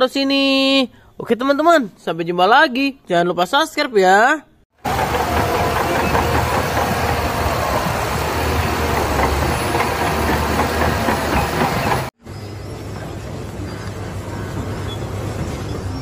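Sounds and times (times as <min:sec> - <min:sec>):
bulldozer diesel engine under load: 0:04.8 - 0:12.2.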